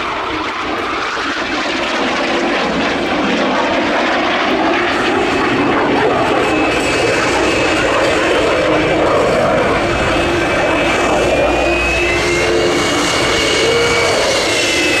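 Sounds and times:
jet engine roar: 0.0s - 15.0s.

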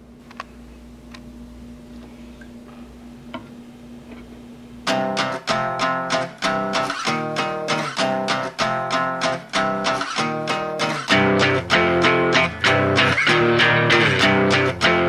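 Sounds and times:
faint steady hum: 0.0s - 15.0s
strummed guitar chords: 4.8s - 15.0s.

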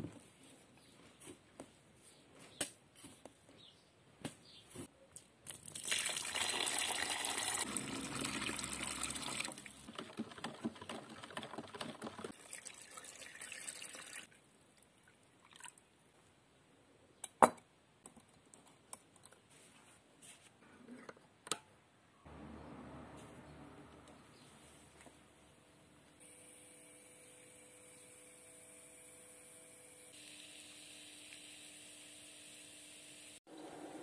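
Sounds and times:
water pouring into plastic bucket: 5.5s - 14.3s.

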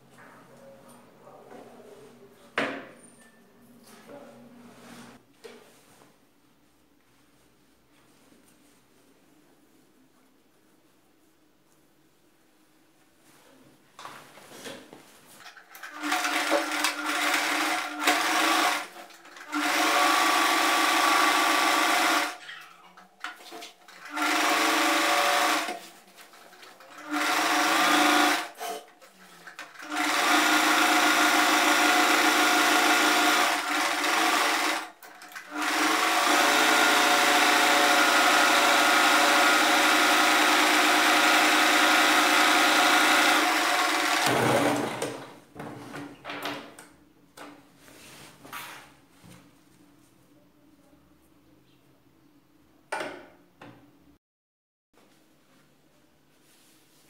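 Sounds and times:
electric sewing machine stitching: 15.6s - 22.4s, 23.9s - 45.2s.

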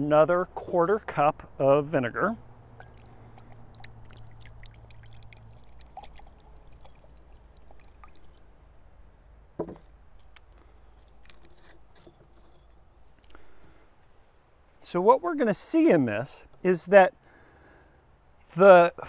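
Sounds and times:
liquid pouring from a bottle: 2.4s - 8.5s
cup knocking on wooden table: 9.6s - 9.9s.

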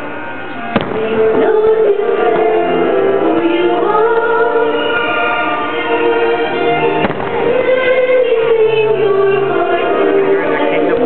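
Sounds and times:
orchestral music in held chords: 0.0s - 11.0s
sharp firework bang: 0.8s - 1.1s, 7.0s - 7.4s.

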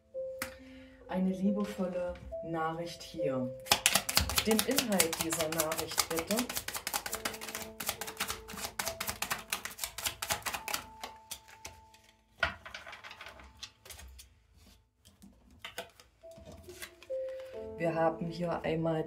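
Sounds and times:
card slap: 3.7s - 11.6s
cards clicking on table: 3.7s - 14.2s, 15.6s - 16.1s
cards being shuffled: 3.7s - 17.5s.

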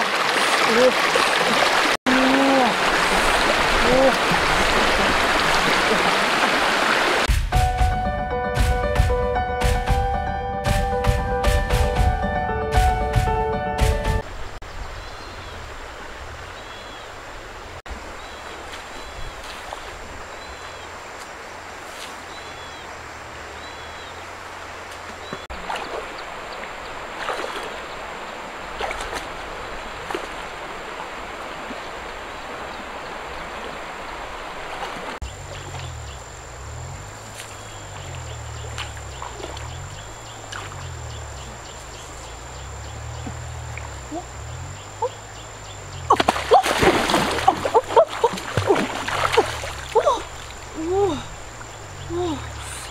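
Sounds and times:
shallow river water running: 0.0s - 7.3s, 14.1s - 52.9s
water splashing from wading: 0.0s - 7.3s, 17.9s - 52.8s.

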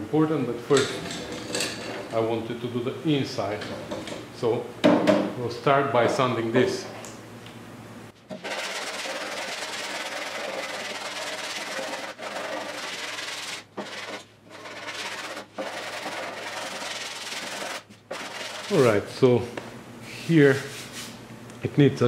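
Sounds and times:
sandpaper rasping: 8.3s - 19.0s.

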